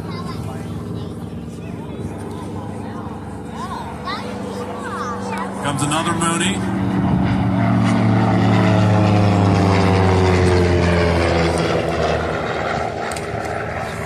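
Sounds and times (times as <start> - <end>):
propeller airplane flying past: 0.0 - 14.0.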